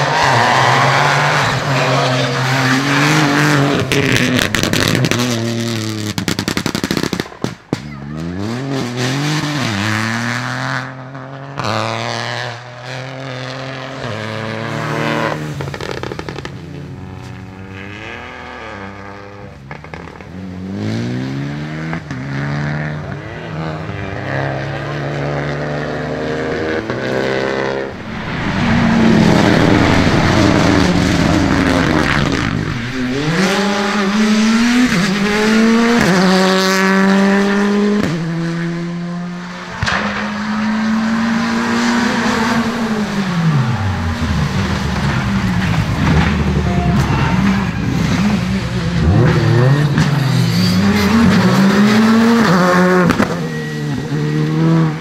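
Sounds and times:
rally car engines revving: 0:00.0 - 0:55.0
tyre noise rush: 0:27.0 - 0:36.3.

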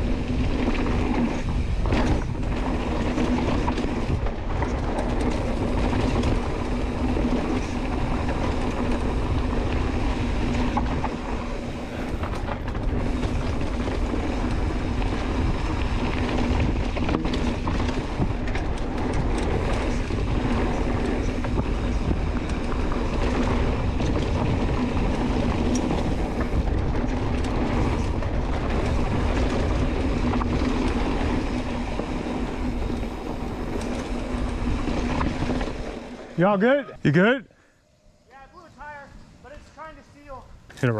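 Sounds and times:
wind on microphone: 0:00.0 - 0:35.8
bike rattle and tyre noise: 0:00.0 - 0:40.9.

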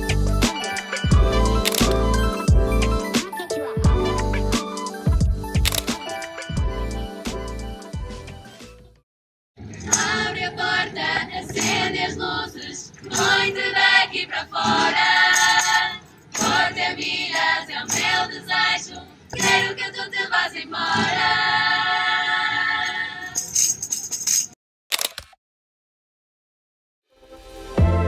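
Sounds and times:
women singing in a group: 0:09.8 - 0:23.4.

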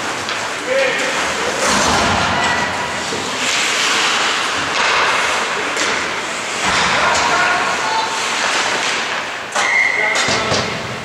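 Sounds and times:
ice skates scraping ice: 0:00.0 - 0:06.8.

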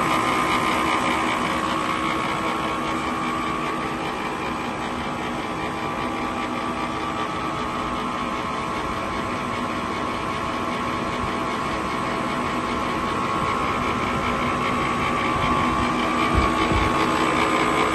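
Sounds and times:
machine humming: 0:00.0 - 0:17.9
whirr of rollers and motors: 0:00.0 - 0:17.9.

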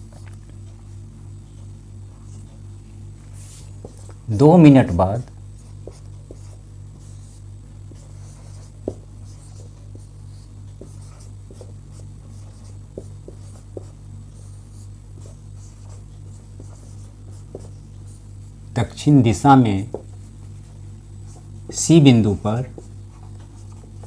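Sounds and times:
steady low hum: 0:00.0 - 0:24.0
marker writing on whiteboard: 0:05.6 - 0:18.3, 0:19.8 - 0:21.9, 0:22.6 - 0:24.0.

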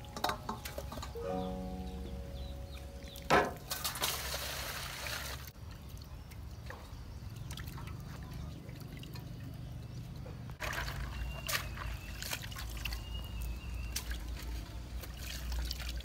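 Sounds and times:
water splashing into metal basin: 0:00.0 - 0:01.3, 0:02.9 - 0:05.6, 0:10.6 - 0:16.0
water trickling and dripping: 0:00.0 - 0:16.0.

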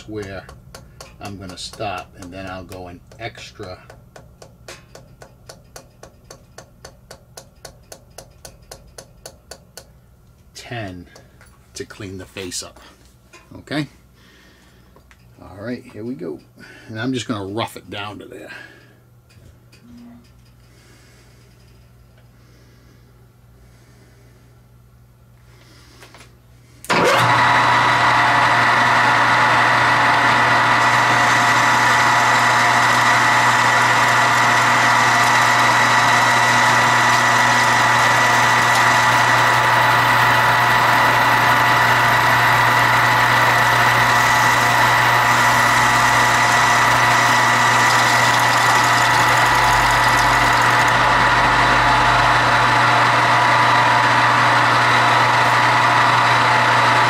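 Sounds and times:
lathe high whine: 0:26.9 - 0:57.0
metal lathe running: 0:26.9 - 0:57.0.

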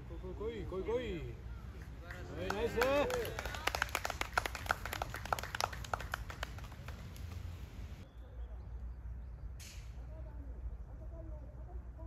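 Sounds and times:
people clapping: 0:01.8 - 0:07.5.

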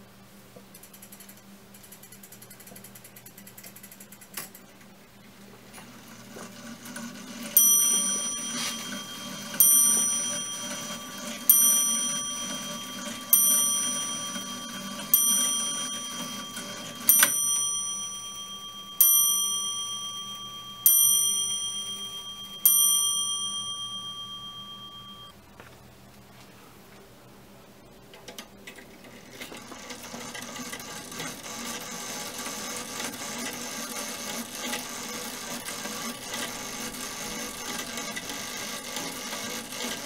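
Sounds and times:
clock mechanism whirring: 0:00.7 - 0:04.8, 0:05.6 - 0:25.4, 0:28.2 - 0:40.0
clock bell striking: 0:07.2 - 0:25.3.

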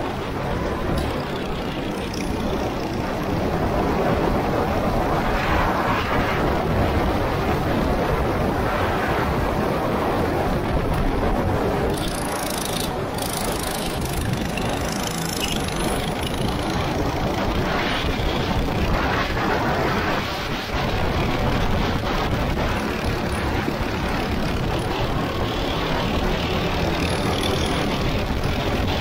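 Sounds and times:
go-kart engine running: 0:00.0 - 0:04.8, 0:10.6 - 0:19.3, 0:20.2 - 0:29.0
steady rushing noise: 0:00.0 - 0:29.0.

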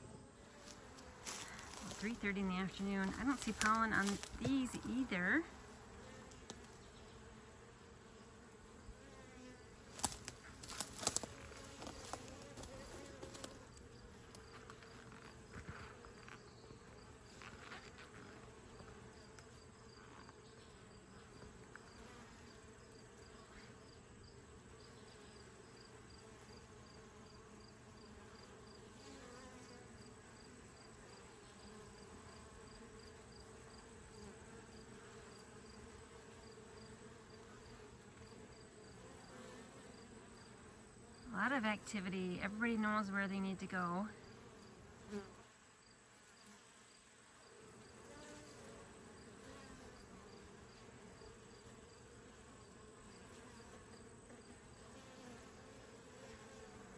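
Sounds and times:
bees buzzing: 0:00.0 - 0:56.9.

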